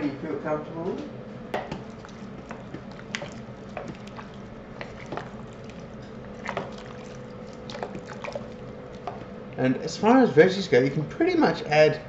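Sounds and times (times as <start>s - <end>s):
wooden spoon stirring vegetables: 1.6s - 9.3s
wet squelching: 1.6s - 9.6s.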